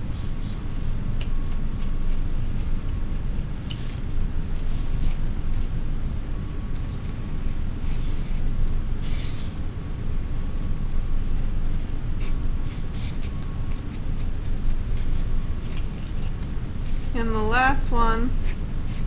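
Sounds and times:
marker scratching on paper: 0:07.8 - 0:09.6, 0:11.4 - 0:17.1, 0:18.4 - 0:19.0.

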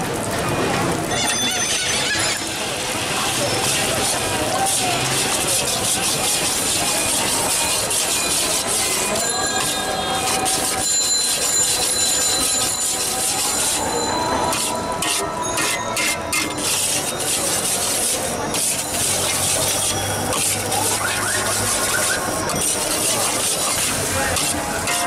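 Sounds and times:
oil sizzling: 0:00.9 - 0:25.0
metal spatula scraping a wok: 0:01.1 - 0:25.0.

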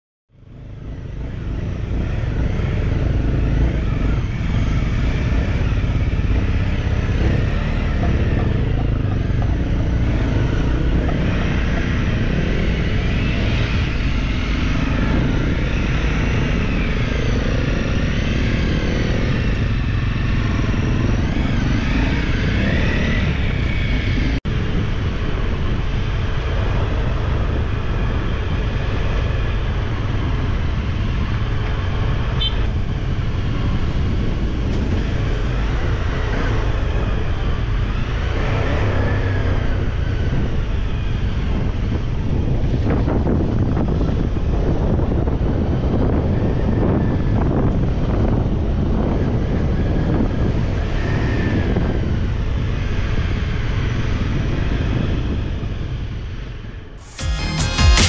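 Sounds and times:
heavy low rumble: 0:00.4 - 0:30.1, 0:57.0 - 0:58.0
dirt bike engines revving: 0:00.8 - 0:24.4.

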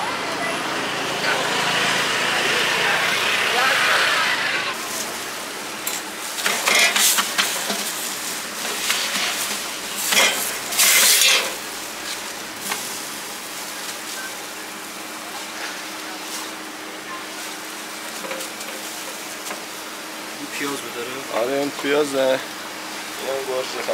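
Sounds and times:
food sizzling in a pan: 0:03.2 - 0:20.6
metal utensils scraping a pan: 0:05.9 - 0:11.6.

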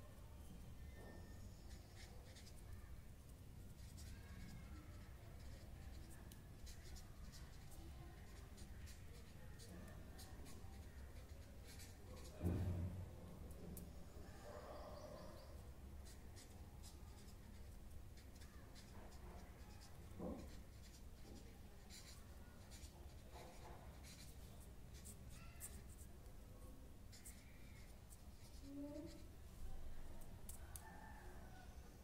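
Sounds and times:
pen scratching on paper: 0:00.9 - 0:02.8, 0:03.7 - 0:12.8, 0:15.2 - 0:26.1, 0:27.1 - 0:29.3.

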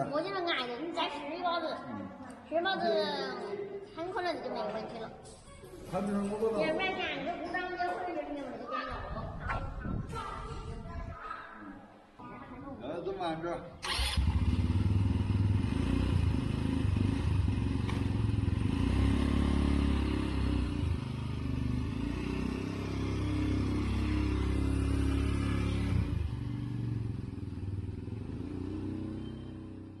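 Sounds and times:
motorcycle engine pulling away: 0:13.8 - 0:30.0.

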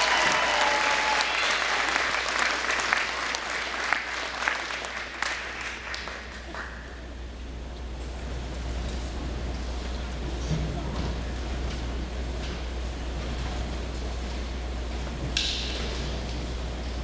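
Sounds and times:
people shouting: 0:00.0 - 0:01.6
audience applauding and cheering: 0:00.0 - 0:07.0.

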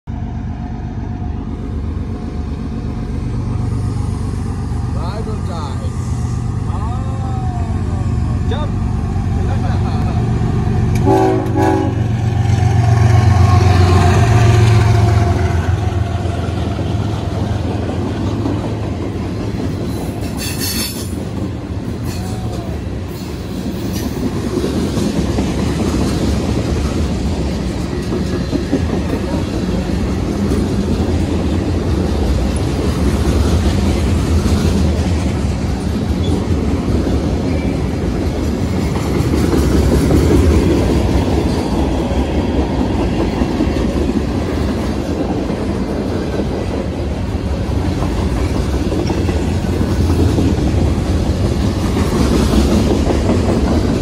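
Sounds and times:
diesel locomotive engine rumble: 0:00.0 - 0:54.0
train horn: 0:10.9 - 0:15.7.

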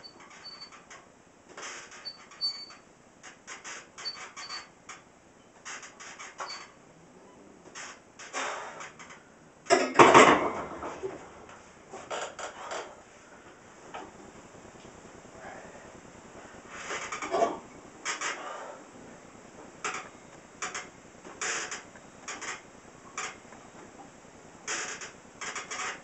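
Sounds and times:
bench rack creaks and squeaks: 0:00.0 - 0:11.2, 0:12.0 - 0:13.0, 0:16.7 - 0:18.6, 0:19.8 - 0:23.5, 0:24.6 - 0:26.0.

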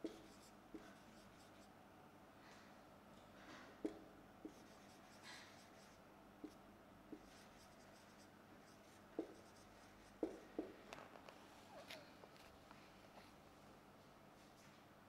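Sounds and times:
marker writing on whiteboard: 0:00.0 - 0:01.7, 0:03.8 - 0:10.8.

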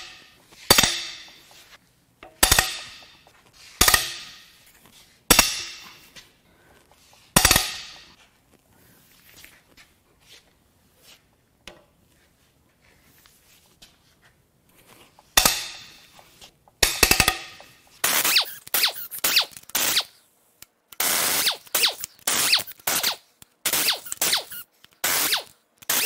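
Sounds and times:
impact wrench bursts: 0:00.0 - 0:01.6, 0:02.2 - 0:04.6, 0:05.3 - 0:06.1, 0:07.3 - 0:08.2, 0:15.4 - 0:16.2, 0:16.8 - 0:20.2, 0:21.0 - 0:26.0
sharp hammering hits: 0:00.0 - 0:01.6, 0:02.3 - 0:04.6, 0:05.3 - 0:06.2, 0:07.3 - 0:08.2, 0:15.4 - 0:16.2, 0:16.8 - 0:20.0.

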